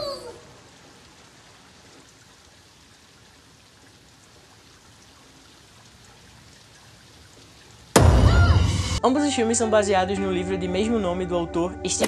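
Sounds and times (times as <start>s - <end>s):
water running into storm drain: 0.0s - 9.0s
faint steady rain: 0.0s - 12.0s.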